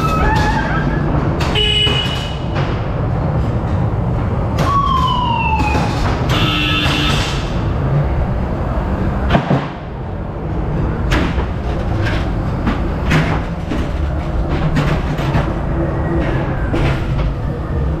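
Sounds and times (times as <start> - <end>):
ride car rumbling on track: 0.0 - 18.0.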